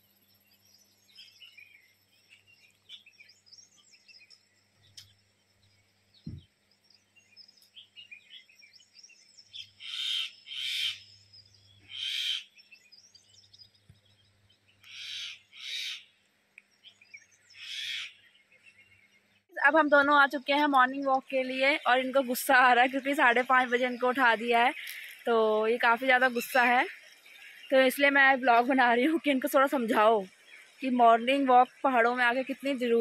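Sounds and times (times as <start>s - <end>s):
birds chirping and twittering: 0.0s - 33.0s
loud short bird calls: 9.5s - 11.1s, 11.8s - 12.8s, 14.8s - 16.2s, 17.5s - 18.3s.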